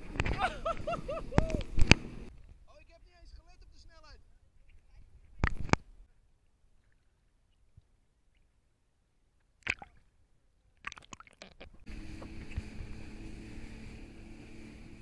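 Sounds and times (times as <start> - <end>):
jet ski engine running: 0.0 - 2.3, 11.8 - 15.0
spray hissing and water rushing: 11.9 - 15.0.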